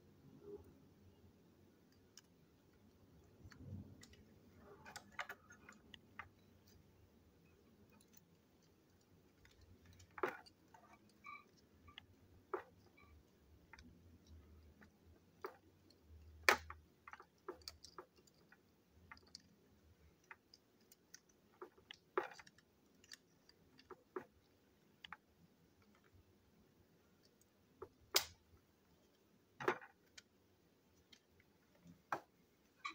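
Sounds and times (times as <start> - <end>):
plastic toy parts clicking: 1.9 - 6.9, 7.8 - 26.2, 27.2 - 32.9.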